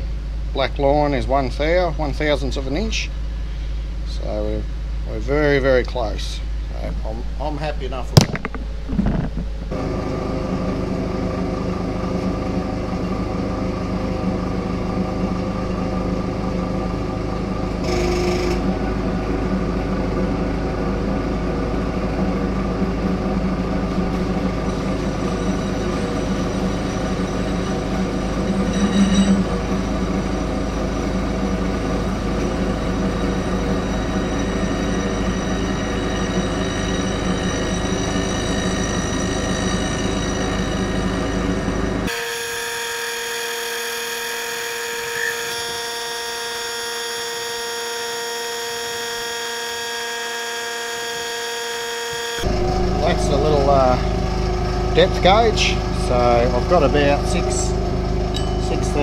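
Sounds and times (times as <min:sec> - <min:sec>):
metal lathe humming: 0:08.2 - 0:59.0
thin high whine: 0:22.2 - 0:59.0.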